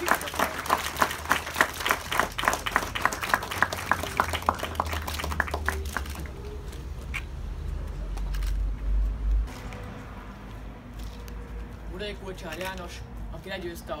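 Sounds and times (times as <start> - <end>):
small group applauding: 0.0 - 6.4.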